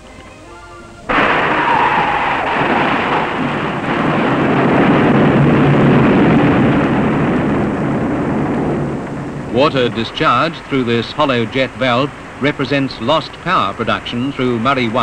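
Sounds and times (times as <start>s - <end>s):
rush of spraying water: 8.7s - 15.0s.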